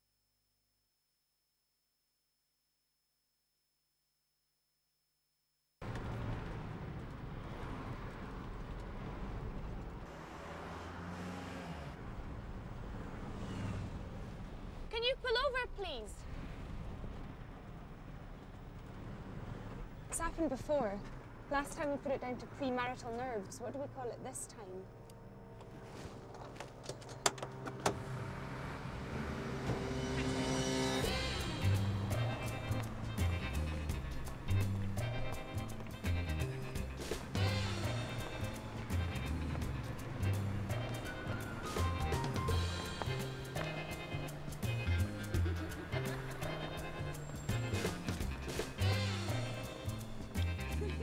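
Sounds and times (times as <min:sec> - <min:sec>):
car engine and road noise: 0:05.8 - 0:51.0
street traffic: 0:05.8 - 0:51.0.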